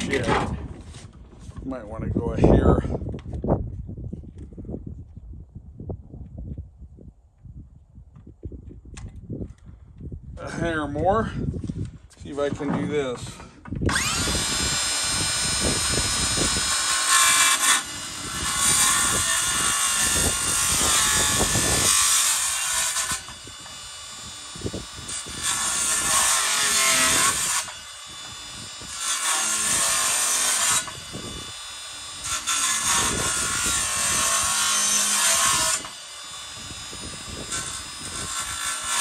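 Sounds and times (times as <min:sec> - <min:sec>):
circular saw cutting wood: 0:12.6 - 0:39.0.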